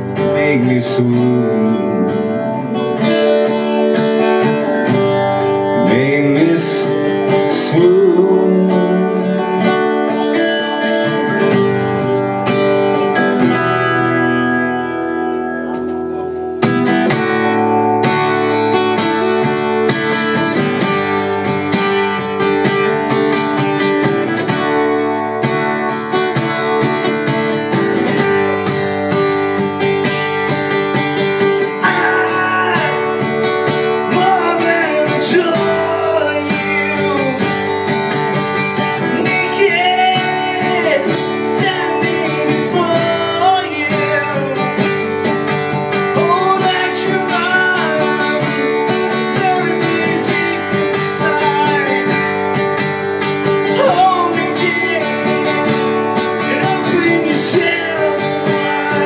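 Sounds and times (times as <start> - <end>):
man singing: 0.0 - 12.0, 31.6 - 52.7, 53.4 - 59.0
acoustic guitar strumming chords: 0.0 - 59.0.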